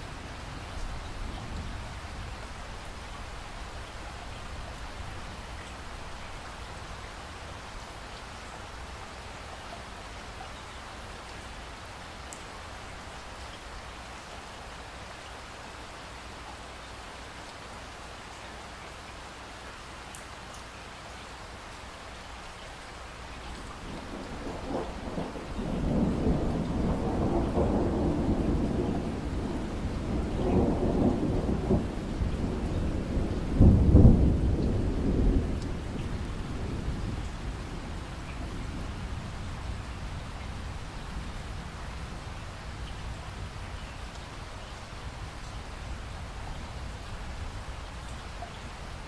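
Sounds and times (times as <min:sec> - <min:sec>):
rain falling: 0:00.0 - 0:49.0
rolling thunder: 0:23.8 - 0:41.8.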